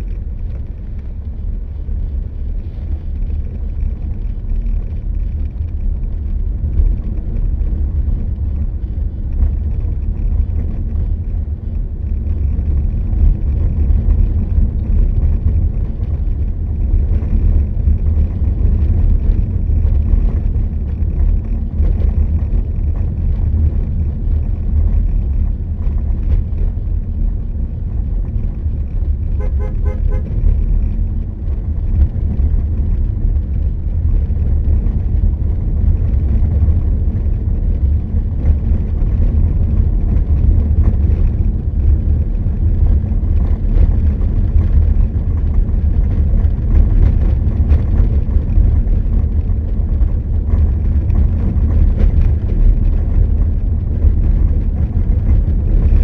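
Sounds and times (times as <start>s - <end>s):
wind and road noise: 0.0s - 56.0s
vehicle horn: 29.3s - 30.4s.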